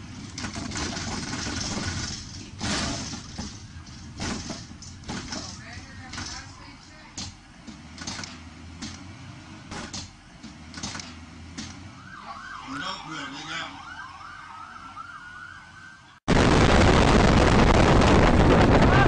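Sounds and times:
emergency vehicle siren: 0:11.3 - 0:19.0
wind rushing over microphone: 0:16.3 - 0:19.0.

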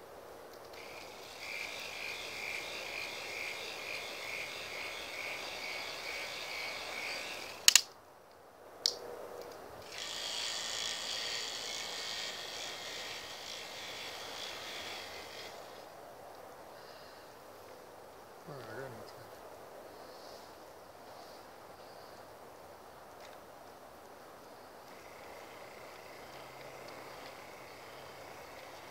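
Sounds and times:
toy motor whirring: 0:00.7 - 0:07.9, 0:09.8 - 0:15.9, 0:24.9 - 0:28.9
sharp clicks: 0:07.6 - 0:09.6.

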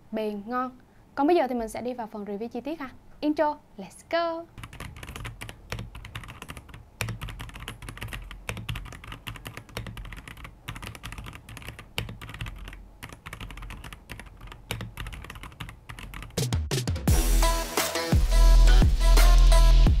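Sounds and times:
mechanical keyboard typing: 0:04.6 - 0:16.4.

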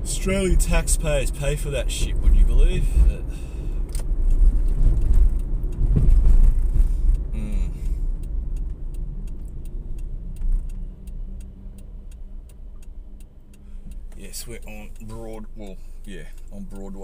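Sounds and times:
car engine and road rumble: 0:00.0 - 0:17.0
turn signal clicking: 0:00.1 - 0:17.0.

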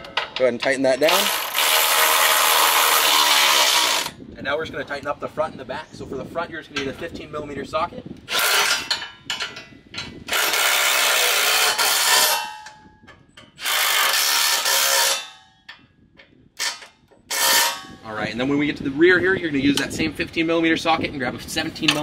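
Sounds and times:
impact wrench hammering: 0:08.3 - 0:12.8, 0:13.5 - 0:15.6, 0:16.6 - 0:18.0.

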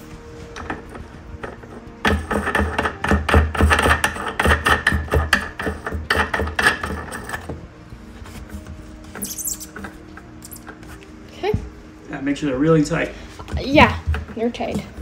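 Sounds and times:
music with quick steady beat: 0:00.0 - 0:06.0.

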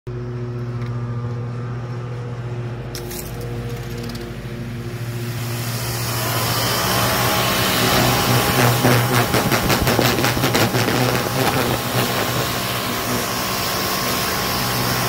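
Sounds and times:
pressure washer motor humming: 0:02.8 - 0:15.0.

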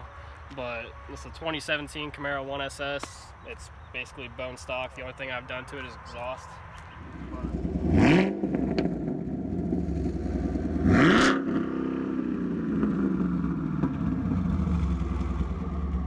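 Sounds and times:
car engine idling and revving: 0:06.7 - 0:16.0.

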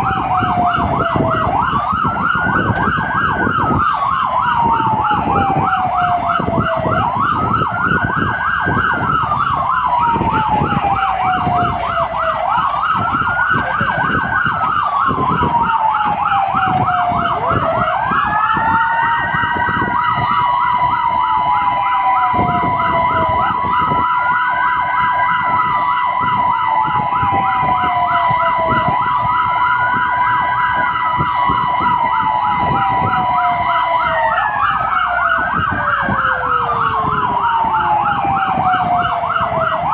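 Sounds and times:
fast warbling siren: 0:00.0 - 0:39.9
slow wailing siren: 0:00.0 - 0:39.9
steady high siren tone: 0:00.0 - 0:39.9
truck engine rumble: 0:00.0 - 0:39.9.

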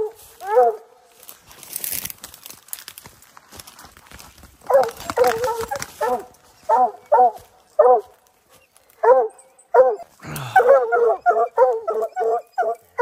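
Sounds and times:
hunting dogs barking: 0:00.0 - 0:01.0, 0:04.6 - 0:08.2, 0:08.9 - 0:13.0
leaves and brush crackling: 0:00.0 - 0:09.2.

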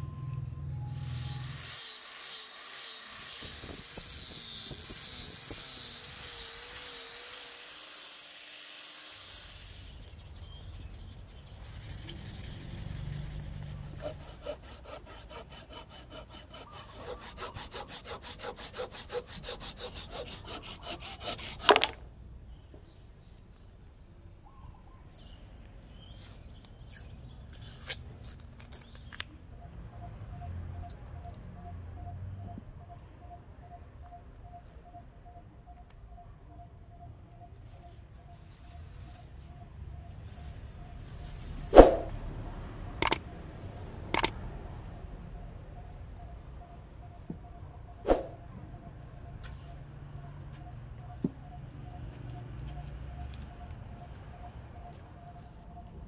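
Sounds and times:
blade sawing wood: 0:00.9 - 0:22.0
rotary polisher hissing: 0:01.0 - 0:10.4.

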